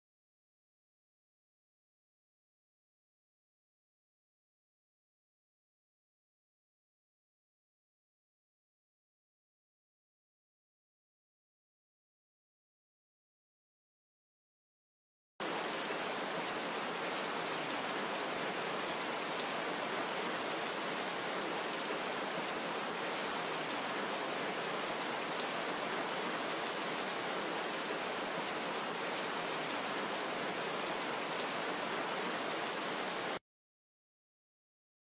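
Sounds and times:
steady rain falling: 15.4s - 33.4s.

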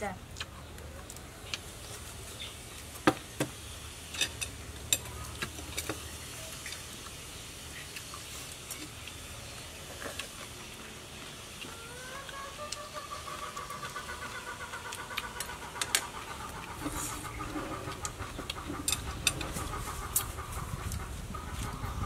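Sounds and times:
steady low hum: 0.0s - 22.0s
chopsticks clicking on plates: 18.0s - 20.3s.

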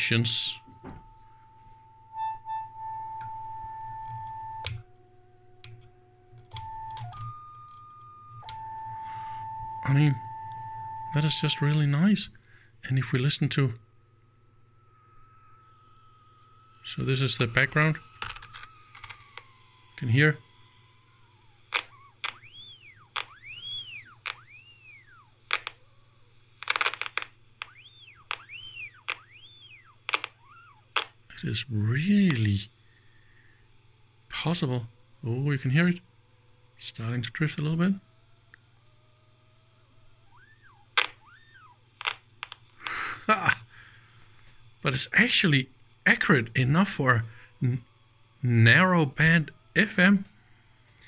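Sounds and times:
steady test tone whistle: 0.0s - 12.3s, 13.1s - 25.4s, 27.6s - 30.8s, 40.2s - 41.8s
clicks: 2.2s - 4.9s, 5.6s - 11.8s, 16.7s - 20.1s, 21.7s - 25.9s, 26.6s - 29.5s, 30.1s - 31.2s, 40.2s - 43.6s
radio crackling: 6.5s - 13.8s, 14.8s - 32.8s, 40.3s - 50.4s.

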